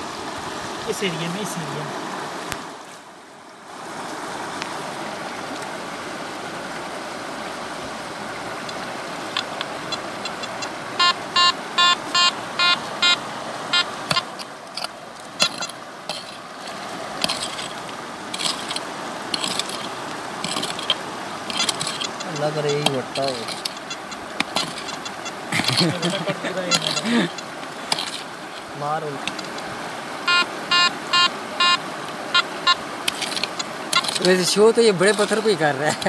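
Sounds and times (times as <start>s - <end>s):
stream rushing: 0.0s - 36.0s
hand pick digging stony soil: 8.7s - 11.2s, 13.8s - 29.7s, 33.0s - 36.0s
metal detector beeps: 9.3s - 16.4s, 17.2s - 29.6s, 30.3s - 34.4s.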